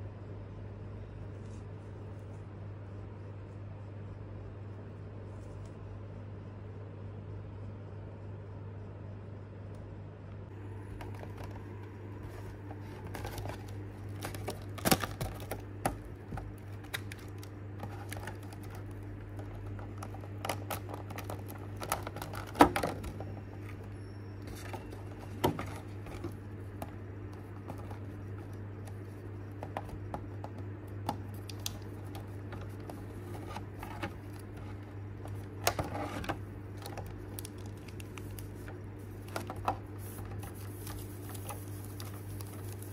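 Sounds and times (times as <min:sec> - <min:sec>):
steady low hum: 0:00.0 - 0:42.9
plastic packaging crinkling: 0:10.5 - 0:42.9.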